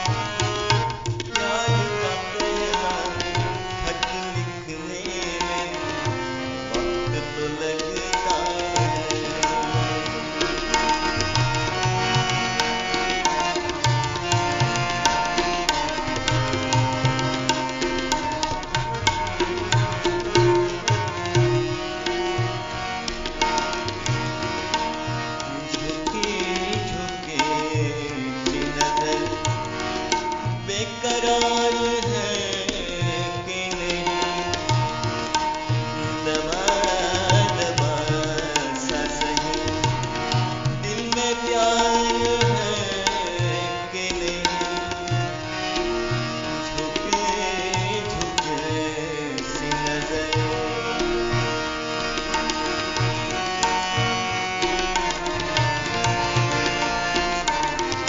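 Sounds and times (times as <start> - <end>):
sustained melodic accompaniment: 0.0 - 58.0
tabla rhythm: 0.0 - 58.0
gliding melodic phrases: 50.6 - 58.0.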